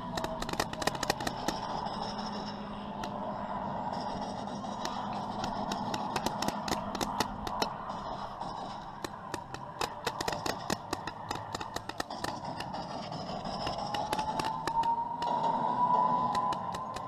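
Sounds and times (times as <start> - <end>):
rapid sharp cracks: 0.0 - 3.3, 4.0 - 17.0
model aircraft engines droning: 0.0 - 17.0.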